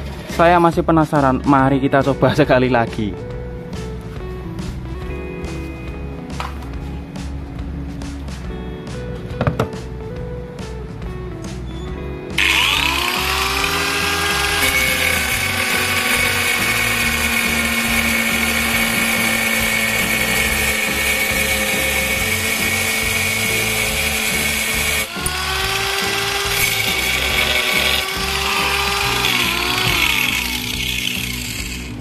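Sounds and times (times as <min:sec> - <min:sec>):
angle grinder whine: 0:12.4 - 0:32.0
blade cutting workpiece: 0:12.4 - 0:32.0.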